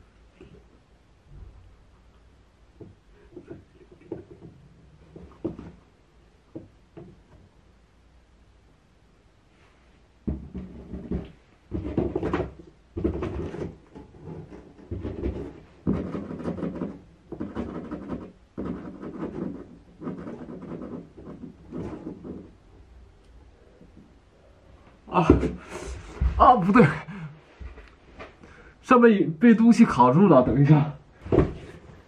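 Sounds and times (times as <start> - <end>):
dull thumps against cardboard: 10.2 - 19.5, 31.2 - 31.9.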